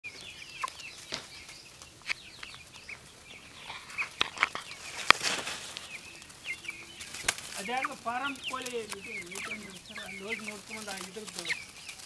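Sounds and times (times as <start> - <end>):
chicks cheeping: 0.0 - 12.0
brief rustle: 4.2 - 6.0.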